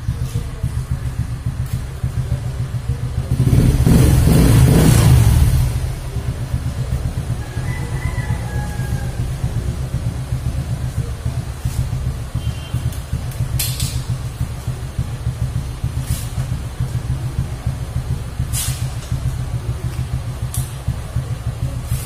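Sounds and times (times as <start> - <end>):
motorcycle engine idling: 0.0 - 22.0
short hissing sounds: 18.4 - 19.0.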